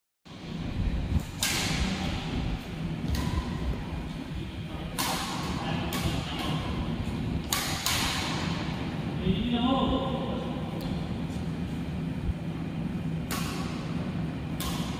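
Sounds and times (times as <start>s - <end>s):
steady low rumble: 0.3s - 14.9s
rackets hitting shuttlecock: 1.2s - 4.1s, 4.8s - 8.9s, 13.2s - 14.9s.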